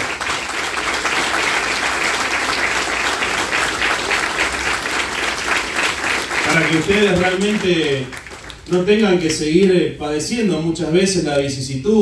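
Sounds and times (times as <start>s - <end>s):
audience applauding: 0.0s - 9.1s.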